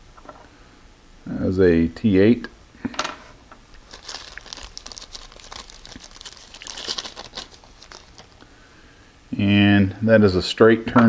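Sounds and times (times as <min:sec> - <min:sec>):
foil wrapper crinkling: 0:03.7 - 0:08.5.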